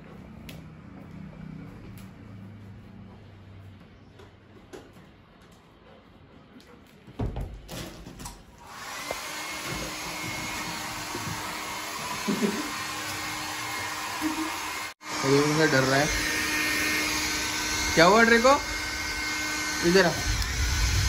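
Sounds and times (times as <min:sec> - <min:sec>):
hair dryer blowing: 0:08.6 - 0:21.0
low bumps: 0:20.2 - 0:21.0.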